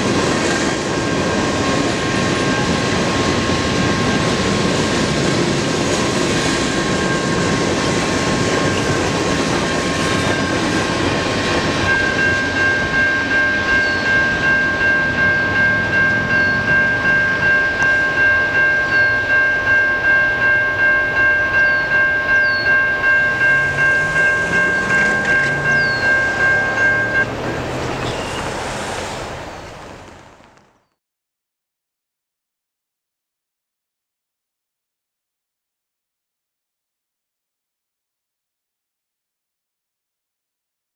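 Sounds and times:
freight train rumbling on rails: 0.0 - 31.0
crossing bell ringing: 0.8 - 4.8, 6.0 - 28.4
bird chirps: 13.8 - 14.2, 16.3 - 16.8, 21.6 - 22.8, 24.7 - 26.4, 28.0 - 28.5.

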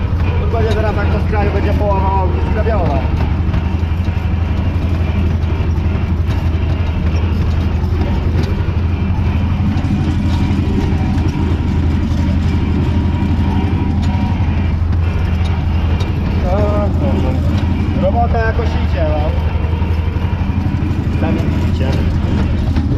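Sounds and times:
tractor diesel engine running: 0.0 - 22.9.

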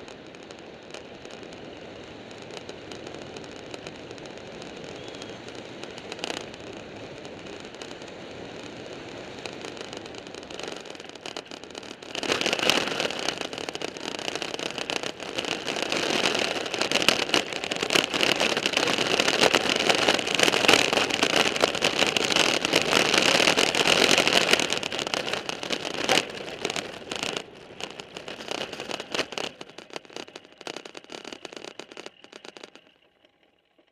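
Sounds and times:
cart wheels rumbling and rattling: 0.0 - 33.9.

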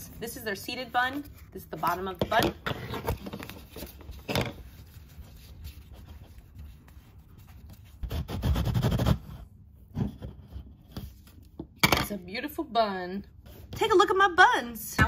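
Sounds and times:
fingers rubbing modeling dough: 4.6 - 9.5.

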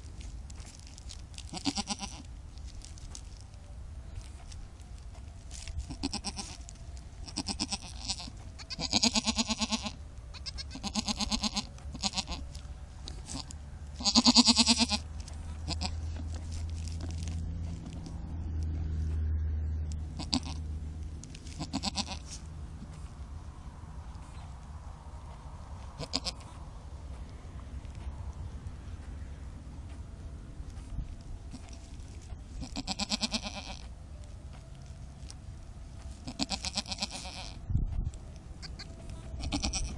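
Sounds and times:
low steady hum: 0.0 - 39.9
goats bleating: 1.5 - 2.3, 5.9 - 6.6, 7.2 - 12.6, 13.2 - 16.1, 20.2 - 20.6, 21.5 - 22.4, 26.0 - 26.5, 32.6 - 33.9, 36.2 - 37.6, 38.6 - 39.9.

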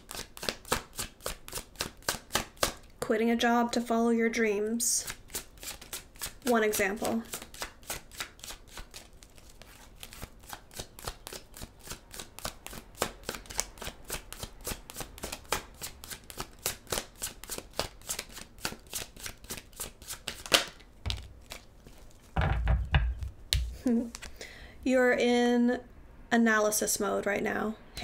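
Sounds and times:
cards being shuffled: 5.0 - 24.4.

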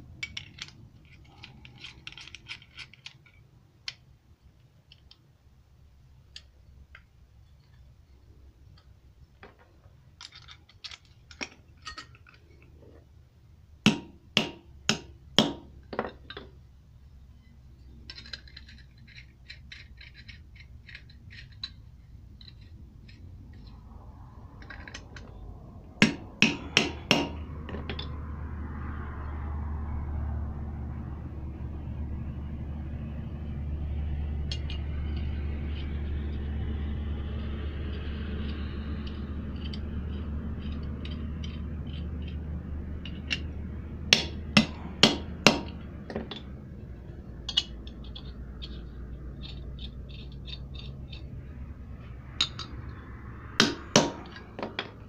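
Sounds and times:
metal tools clinking: 0.2 - 3.4, 8.8 - 12.7, 17.9 - 25.4, 34.4 - 36.4, 44.1 - 55.0
sharp metal knocks: 13.8 - 16.5, 21.1 - 28.2, 37.5 - 55.0
low rumble: 20.2 - 55.0.

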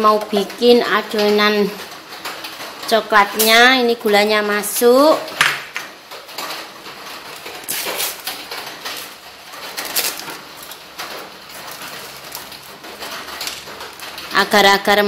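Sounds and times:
plastic sachet crinkling: 7.2 - 14.8.

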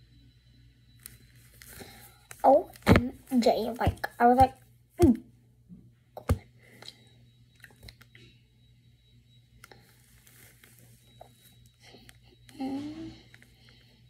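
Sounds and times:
hair rustling and crackling: 9.8 - 11.7.

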